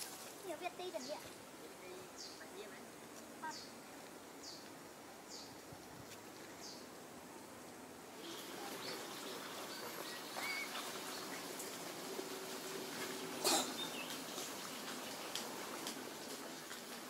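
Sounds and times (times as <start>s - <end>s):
high falling bird chirps: 8.2s - 11.6s.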